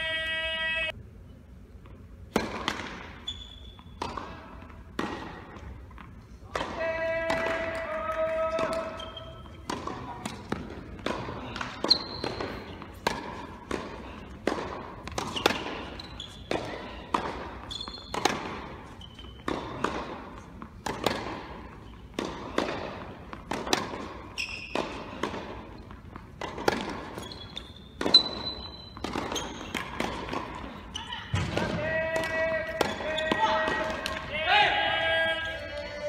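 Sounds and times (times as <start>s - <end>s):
tennis ball hits and bounces: 1.8s - 3.2s, 3.8s - 7.8s, 8.4s - 30.8s
shoes squeaking on court: 2.7s - 4.8s, 8.6s - 31.4s, 32.8s - 33.8s.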